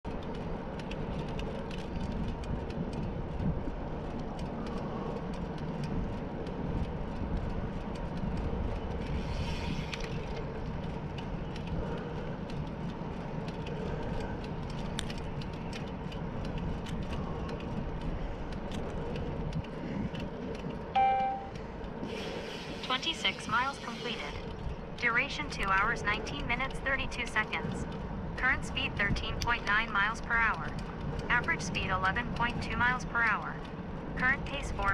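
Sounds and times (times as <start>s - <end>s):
bike clicks and rattles: 0.0s - 21.0s
tyre and wind rumble: 0.0s - 34.9s
short bright tone: 21.0s - 21.5s.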